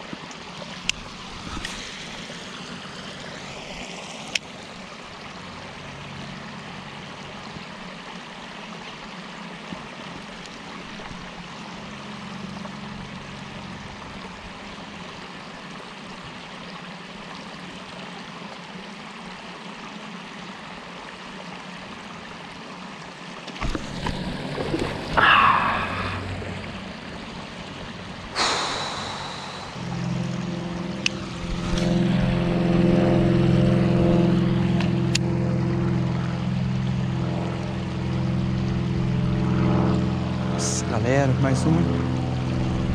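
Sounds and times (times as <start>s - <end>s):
low mechanical hum: 0.0s - 42.9s
water-like background noise: 0.0s - 42.9s
sharp splashes or knocks: 23.5s - 26.9s.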